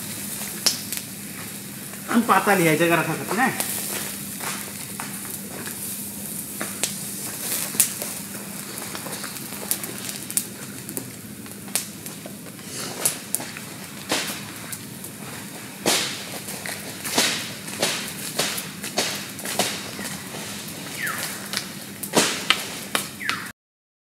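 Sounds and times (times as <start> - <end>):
campfire crackling: 0.0 - 23.5.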